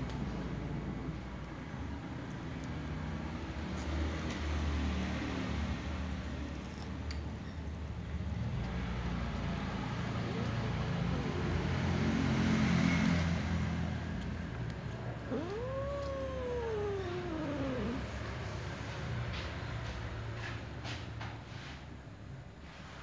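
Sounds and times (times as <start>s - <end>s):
low background noise: 13.6s - 23.0s
cat meowing: 15.2s - 18.2s.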